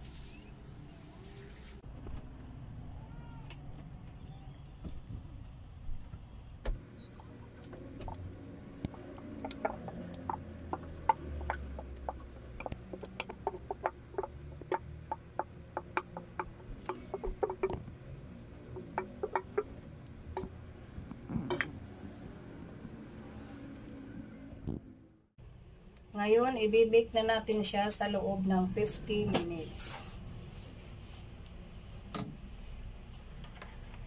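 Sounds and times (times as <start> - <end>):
wooden spatula scraping bowl: 7.2 - 17.9, 18.7 - 21.7.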